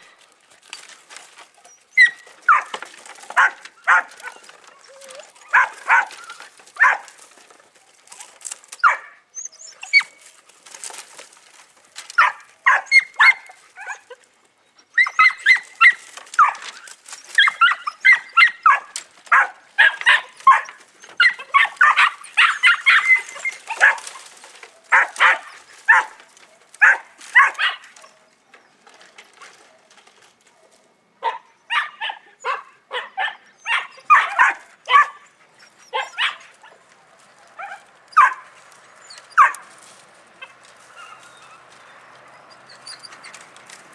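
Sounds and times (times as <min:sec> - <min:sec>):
puppy yapping barks: 0:02.0 - 0:02.8, 0:03.4 - 0:04.4, 0:05.0 - 0:07.2, 0:08.8 - 0:09.2, 0:12.2 - 0:14.2, 0:15.0 - 0:16.8, 0:17.4 - 0:24.2, 0:24.9 - 0:26.2, 0:26.8 - 0:27.9, 0:31.2 - 0:35.2, 0:35.8 - 0:36.5, 0:37.6 - 0:38.5, 0:39.3 - 0:39.7.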